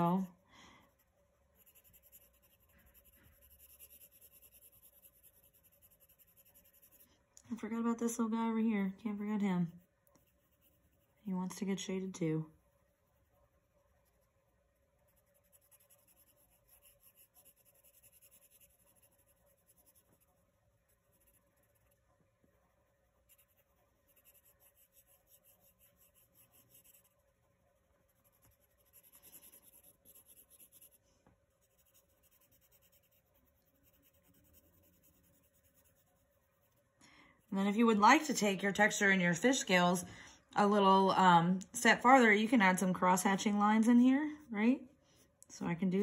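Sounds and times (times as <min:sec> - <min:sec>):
pencil scratching on paper: 0:01.0 - 0:07.9, 0:09.2 - 0:11.8, 0:12.6 - 0:22.1, 0:23.1 - 0:38.9.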